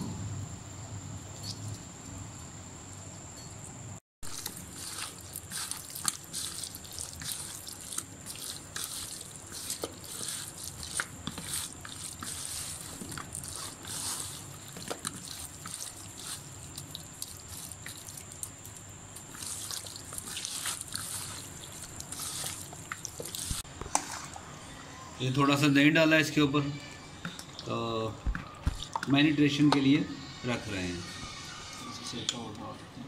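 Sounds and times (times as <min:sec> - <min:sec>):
wet squelches of marinating meat: 0:04.2 - 0:24.5.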